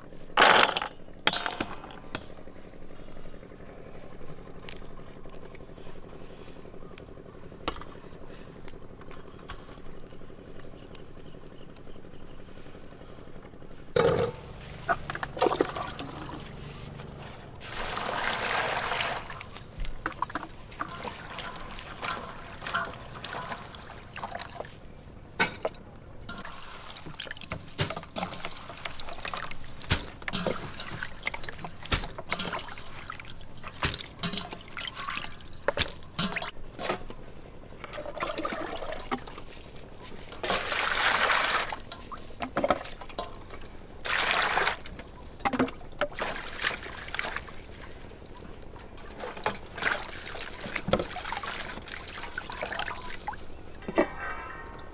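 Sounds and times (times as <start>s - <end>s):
water pouring and splashing: 15.2s - 16.6s, 17.6s - 24.8s, 26.3s - 36.6s, 37.9s - 39.6s, 40.4s - 43.4s, 44.0s - 48.0s, 49.0s - 54.3s.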